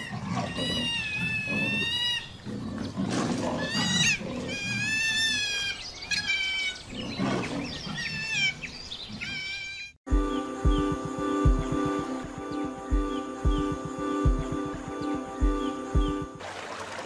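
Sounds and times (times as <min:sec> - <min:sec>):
otters growling: 0:00.0 - 0:05.6, 0:06.8 - 0:08.5.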